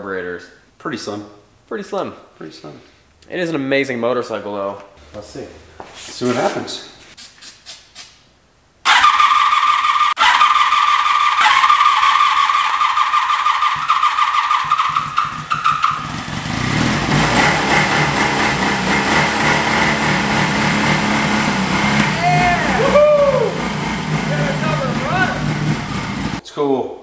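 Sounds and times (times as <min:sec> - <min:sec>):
motorcycle engine running: 0:13.7 - 0:26.4.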